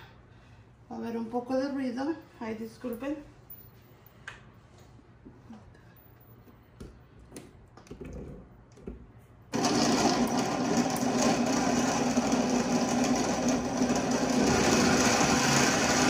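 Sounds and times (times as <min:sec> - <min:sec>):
blender grinding fruit: 0:09.5 - 0:16.0.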